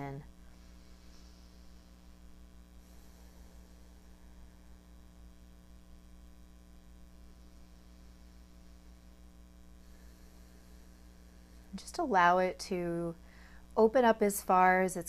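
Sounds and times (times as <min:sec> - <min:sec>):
faint electrical mains hum: 0:00.0 - 0:15.0.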